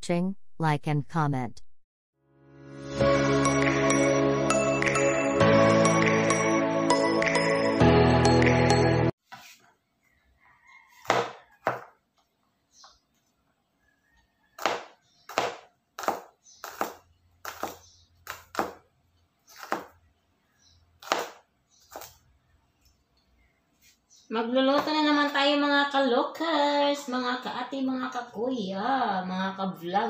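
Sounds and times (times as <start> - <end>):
intro music: 2.2 - 9.1
knife chopping on wooden board: 11.0 - 12.0, 14.6 - 18.8, 19.5 - 20.0, 21.0 - 22.2.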